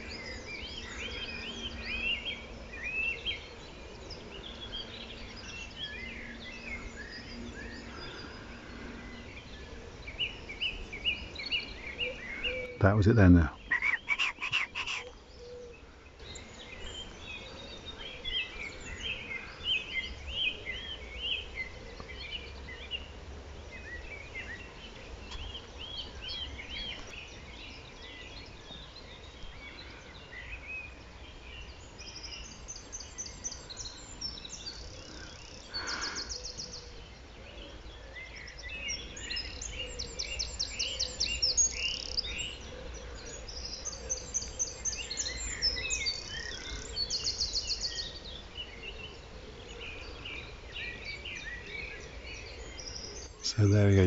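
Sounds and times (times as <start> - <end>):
wren trilling song: 0.0 - 17.2, 50.0 - 54.0
songbirds singing: 0.0 - 54.0.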